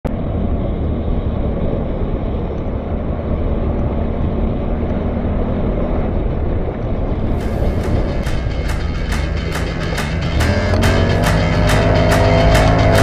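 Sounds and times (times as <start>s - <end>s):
quad engine running: 6.2s - 13.0s.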